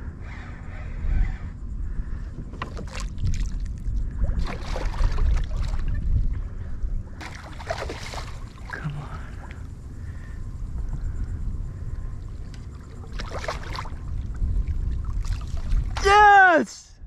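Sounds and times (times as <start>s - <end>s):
fish thrashing and splashing: 2.7s - 6.0s, 7.2s - 8.8s, 12.7s - 16.0s.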